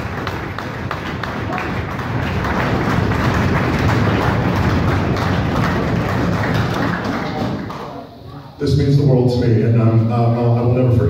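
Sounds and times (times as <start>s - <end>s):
crowd applauding and cheering: 0.0s - 8.2s.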